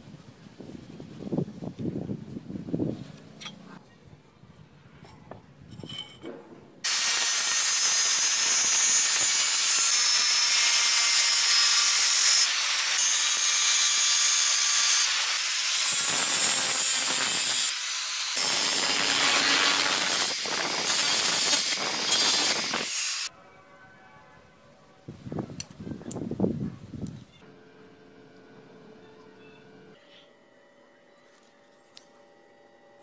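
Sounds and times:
angle grinder cutting metal: 6.8 - 23.3.

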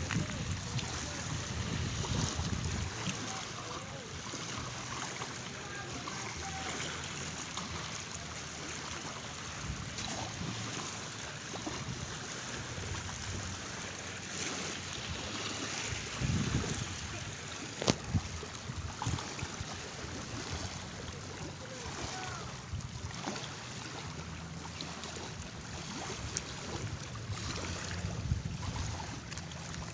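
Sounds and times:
wind gusts on microphone: 0.0 - 3.4, 14.6 - 20.9, 26.0 - 29.4
small waves lapping on rocks: 0.0 - 29.9.

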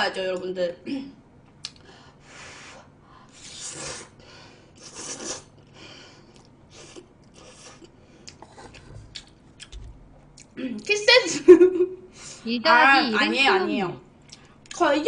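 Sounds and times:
person slurping noodles: 3.4 - 4.2, 4.8 - 5.5
soft chewing: 4.8 - 10.6, 14.2 - 14.8.

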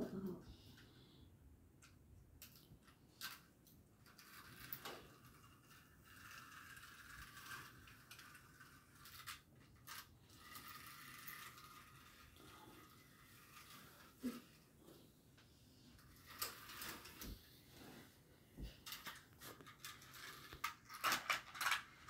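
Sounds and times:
toy car clicking on plastic track: 2.4 - 14.2, 16.0 - 17.3, 18.8 - 22.0.

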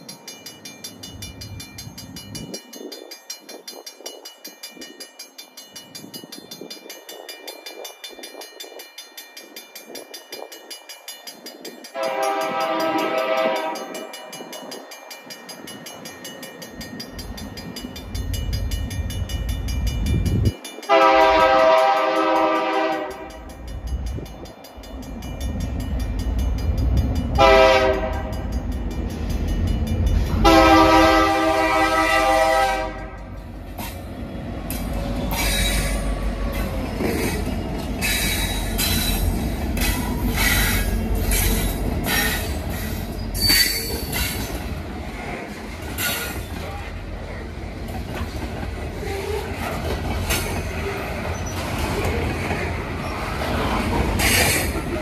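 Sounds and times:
crossing bell dinging: 0.0 - 55.0
locomotive air horn blasts: 12.0 - 14.1, 20.9 - 23.4, 27.4 - 28.5, 30.4 - 33.4.

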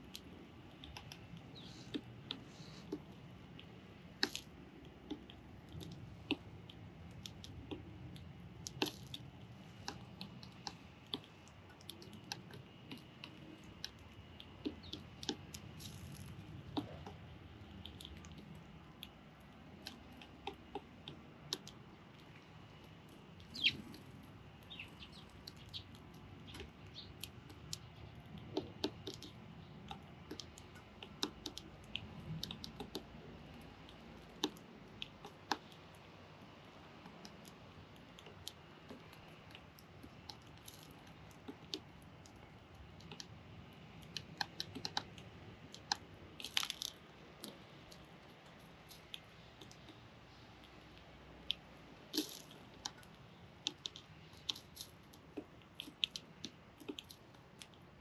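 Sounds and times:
faint bird chirp: 1.4 - 2.8, 23.4 - 27.2.

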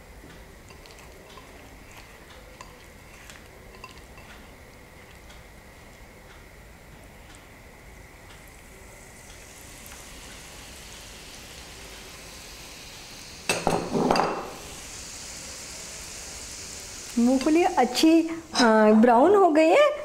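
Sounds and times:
peanuts sizzling in hot oil: 0.0 - 20.0.

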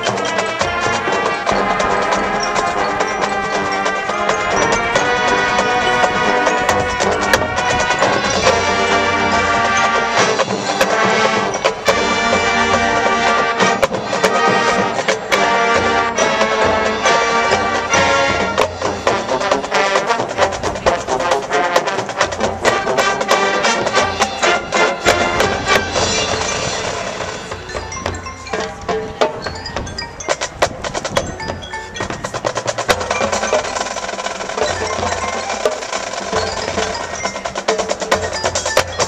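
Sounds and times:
brass chords: 0.0 - 29.1
drums and percussion: 0.0 - 39.0
sharp percussion hits: 0.0 - 39.0.

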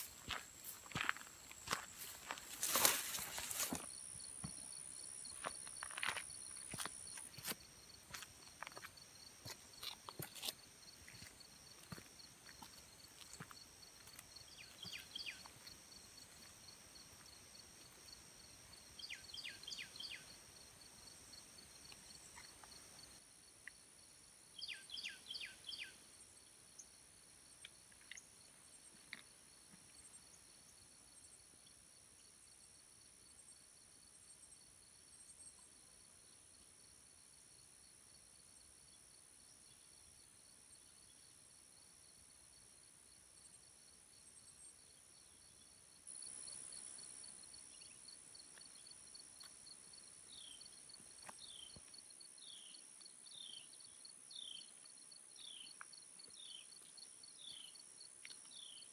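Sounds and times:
insects trilling: 0.0 - 23.8.

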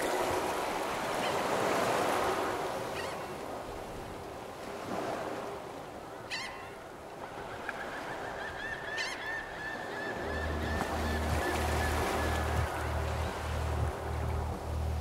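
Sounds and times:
waves on a lakeshore: 0.0 - 15.0.

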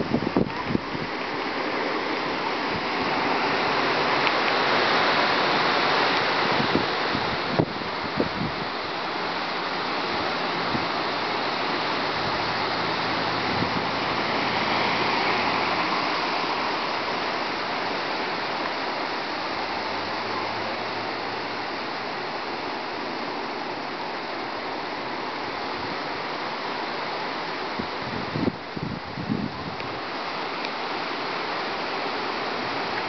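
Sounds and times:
strong wind gusting through leaves: 0.0 - 33.0.

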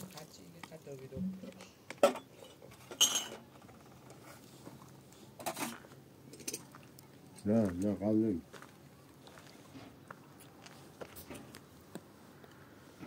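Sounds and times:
dishes and utensils clinking: 1.2 - 3.4.

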